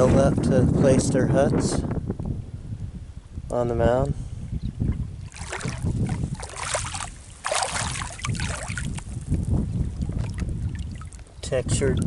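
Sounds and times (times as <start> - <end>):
footsteps crunching on gravel: 5.4 - 9.2.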